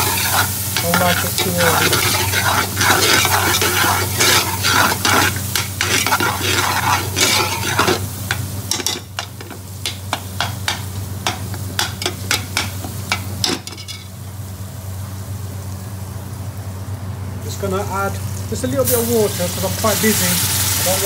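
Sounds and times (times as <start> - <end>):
metal spoon scraping a pot: 0.0 - 8.1
sizzling: 0.0 - 21.0.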